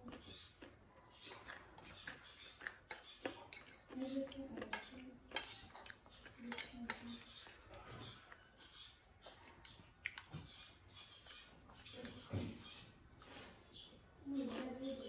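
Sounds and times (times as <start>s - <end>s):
eating and chewing: 0.0s - 15.0s
fork scraping against a plate: 0.2s - 11.3s.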